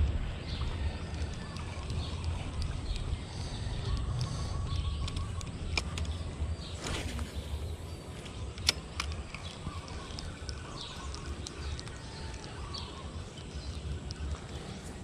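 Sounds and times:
sharp click: 8.3s - 9.6s.

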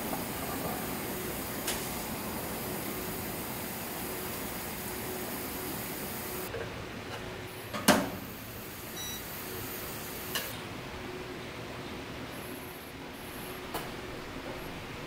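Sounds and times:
faint short beep: 9.0s - 9.2s.

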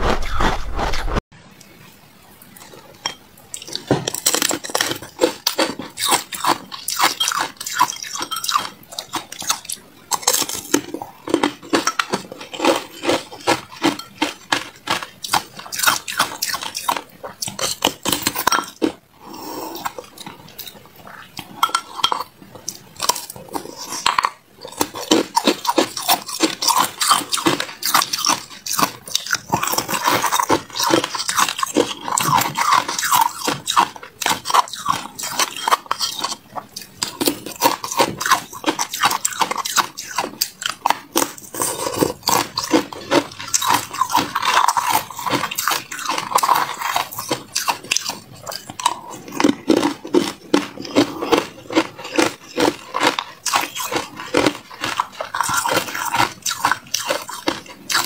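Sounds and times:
ice clinking against glass bowl: 3.0s - 17.0s, 17.6s - 19.0s, 21.5s - 22.3s.

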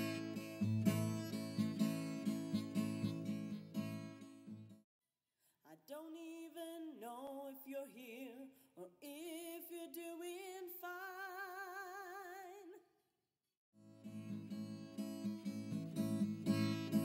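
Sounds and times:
acoustic guitar strumming: 0.0s - 4.8s, 14.0s - 17.0s
wordless singing voice: 5.6s - 12.9s.

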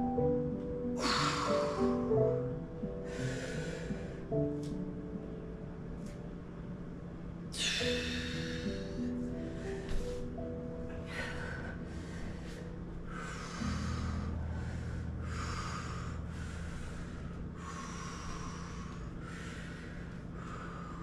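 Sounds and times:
low steady hum: 0.0s - 21.0s
person breathing deeply: 1.0s - 2.2s, 2.9s - 4.4s, 7.6s - 10.4s, 11.0s - 21.0s.

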